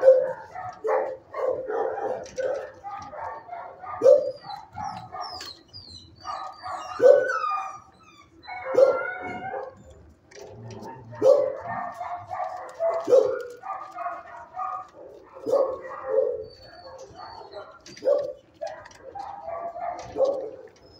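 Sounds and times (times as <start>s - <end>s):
loud dog barks: 0.0s - 5.4s, 8.6s - 9.8s, 10.4s - 20.8s
din of dogs barking: 0.0s - 20.9s.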